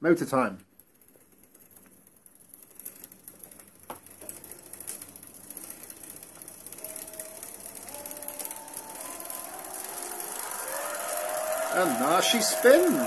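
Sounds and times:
electric motor whirring: 0:04.2 - 0:13.0
rising motor whine: 0:06.8 - 0:13.0.

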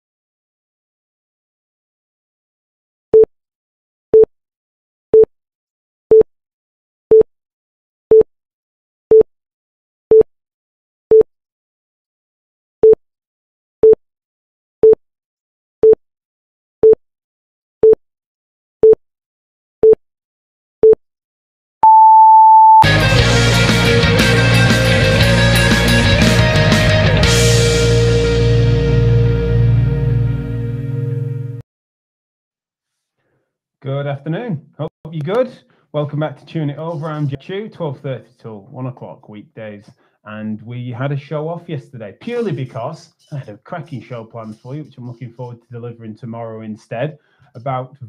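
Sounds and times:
electronic countdown beeps: 0:21.8 - 0:22.8
rock intro music: 0:22.8 - 0:31.6.

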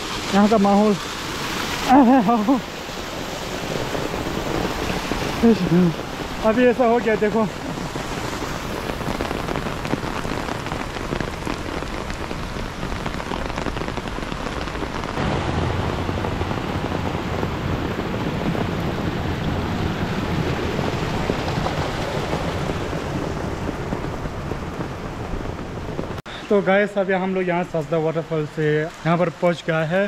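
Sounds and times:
heavy rain pattering: 0:00.0 - 0:30.0
deep rumble: 0:03.8 - 0:26.2.

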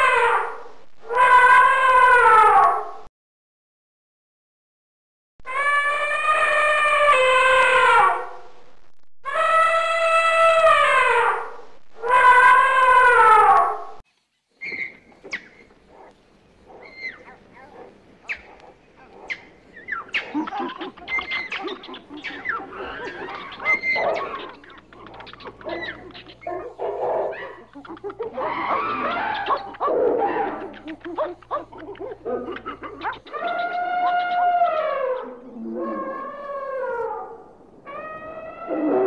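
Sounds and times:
animal chirps and clicks: 0:14.6 - 0:16.2, 0:16.8 - 0:36.2.

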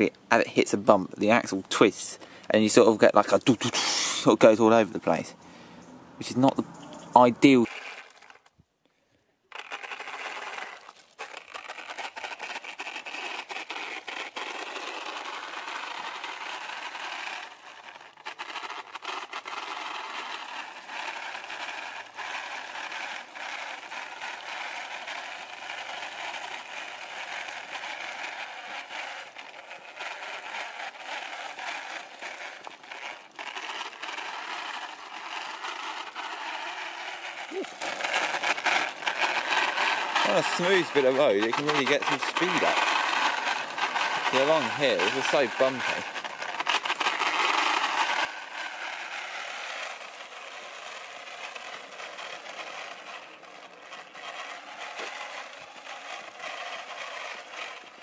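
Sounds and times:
toy car rattling over pavement: 0:00.0 - 0:58.0.

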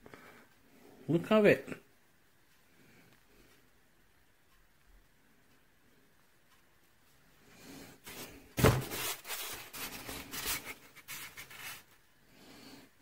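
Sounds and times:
rubbing and scraping: 0:08.0 - 0:12.0.

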